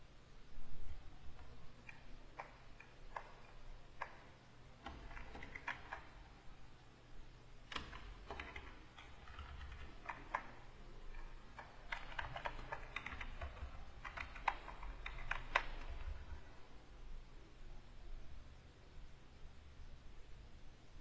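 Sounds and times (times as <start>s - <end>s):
keyboard keys clicking: 1.3s - 6.3s, 7.6s - 16.4s.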